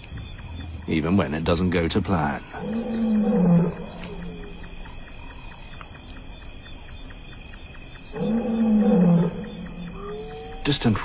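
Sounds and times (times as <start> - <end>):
faint regular ticking: 0.0 - 11.0
distant lion roaring: 2.4 - 4.7, 8.1 - 10.8.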